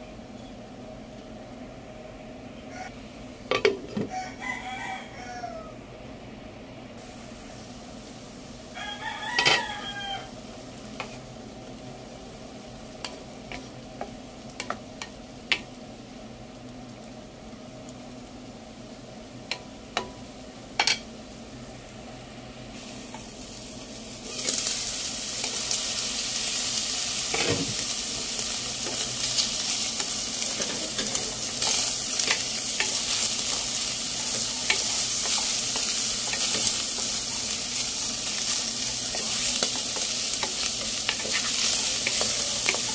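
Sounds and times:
meat sizzling in a wok: 0:03.6 - 0:05.7, 0:07.0 - 0:42.9
wooden spatula stirring: 0:30.5 - 0:42.9.

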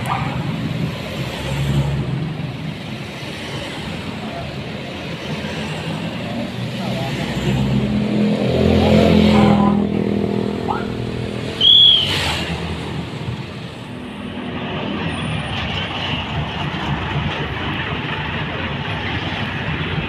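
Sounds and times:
vehicle passing: 0:00.0 - 0:15.3
traffic hum: 0:00.0 - 0:20.0.

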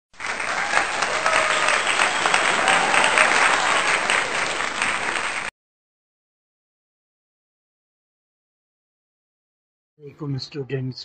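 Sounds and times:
crowd applauding: 0:00.1 - 0:05.5
voices in crowd: 0:00.4 - 0:05.5.

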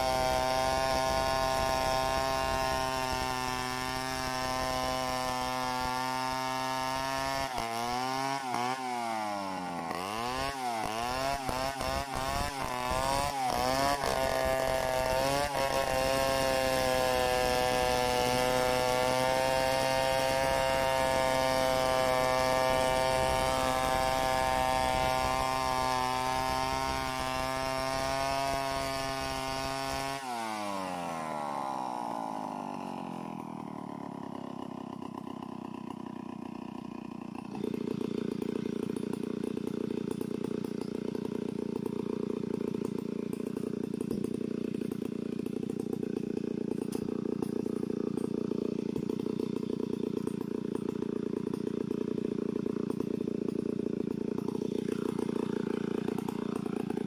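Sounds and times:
chainsaw cutting a log: 0:00.0 - 0:57.0.

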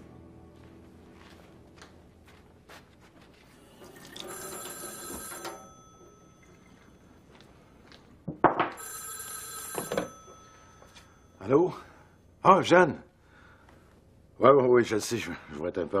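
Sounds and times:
landline telephone ringing: 0:03.7 - 0:07.4, 0:08.7 - 0:12.0.

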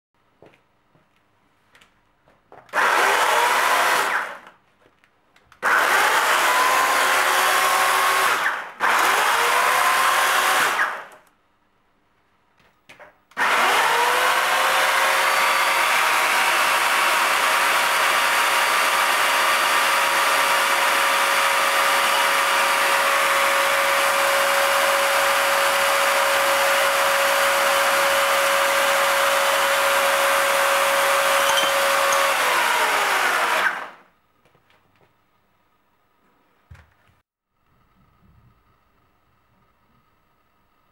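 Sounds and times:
electric chainsaw motor whine: 0:02.7 - 0:04.4, 0:05.6 - 0:11.2, 0:13.4 - 0:34.1.

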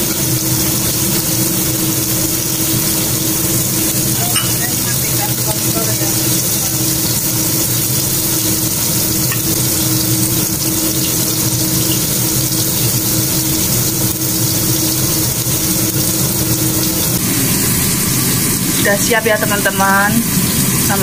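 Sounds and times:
pot simmering hiss: 0:00.0 - 0:21.0
ladle scraping pot: 0:04.1 - 0:06.9.

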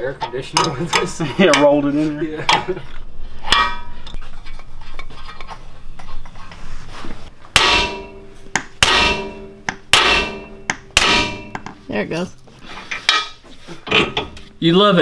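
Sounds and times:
metal clank of tools: 0:03.4 - 0:04.2
hammer striking steel: 0:03.5 - 0:03.9, 0:07.6 - 0:11.8.

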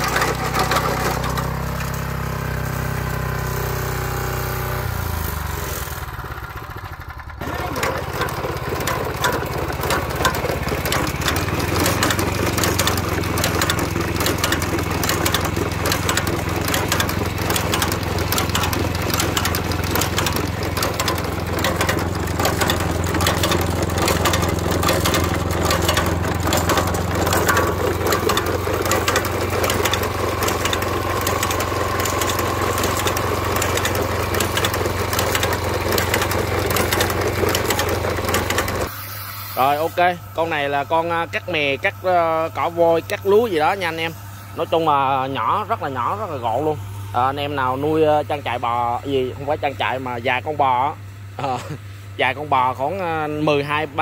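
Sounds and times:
fast mechanical clatter: 0:00.0 - 0:02.6, 0:04.9 - 0:38.9
petrol engine running: 0:00.0 - 0:50.1.

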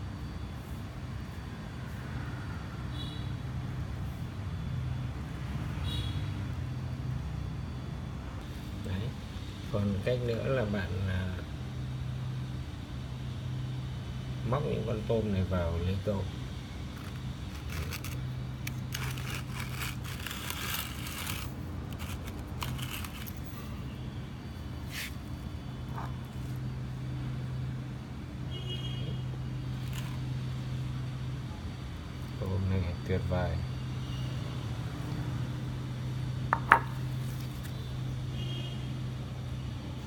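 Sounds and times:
steady low hum: 0:06.4 - 0:40.0
hands scraping plastic bowl: 0:17.0 - 0:23.4
sharp knocks on hard surface: 0:36.6 - 0:37.0.

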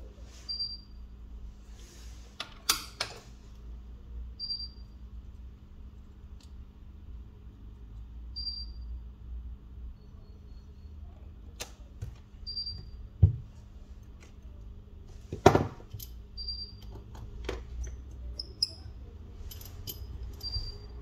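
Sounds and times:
steady low hum: 0:03.2 - 0:21.0
small tools clicking and tapping: 0:15.8 - 0:18.9.

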